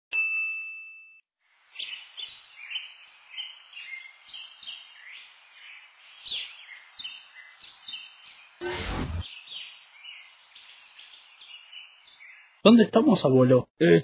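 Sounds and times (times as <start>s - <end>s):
small birds chirping and whistling: 1.8s - 12.6s.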